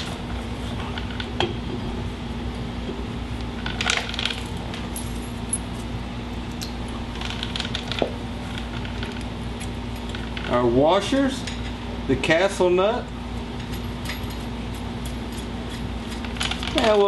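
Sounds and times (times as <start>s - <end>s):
steady low hum: 0.0s - 17.0s
metallic clinks and scrapes: 13.6s - 16.9s.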